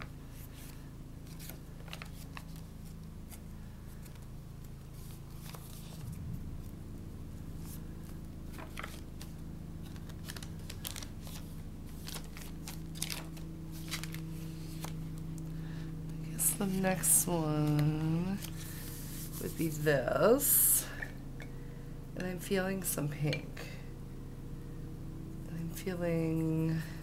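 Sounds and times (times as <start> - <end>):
steady low hum: 0.0 - 27.0
paper pages rustling: 0.4 - 4.3, 4.9 - 6.2, 7.6 - 15.2, 17.6 - 19.8.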